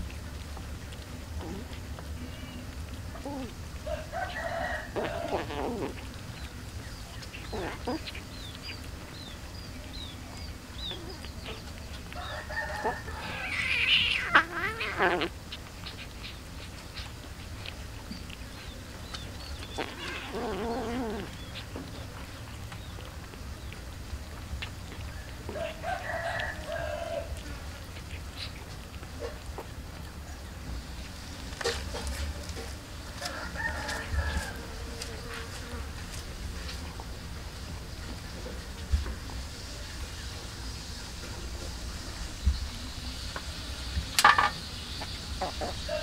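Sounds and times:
rooster crowing: 3.8 - 5.7, 12.1 - 14.4, 25.5 - 27.4, 33.2 - 35.0, 45.8 - 46.0.

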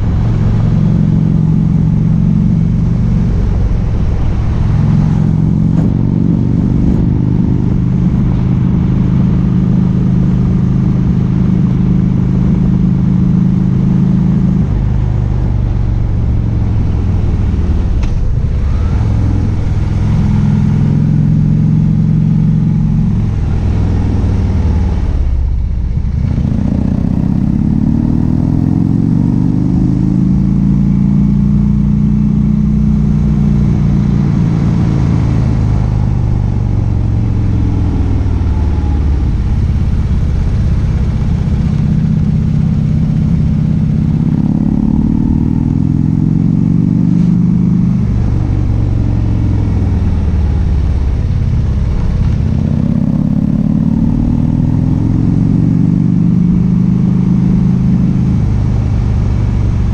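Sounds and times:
wind rushing over microphone: 0.0 - 11.7
motorcycle engine revving: 0.0 - 59.9.

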